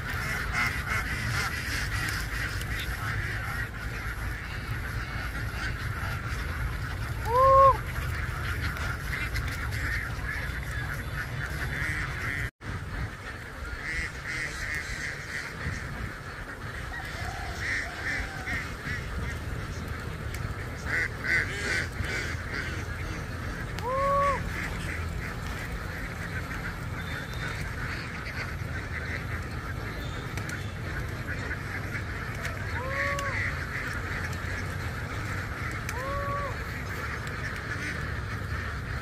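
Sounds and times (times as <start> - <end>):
flock of ducks quacking: 0.0 - 39.0.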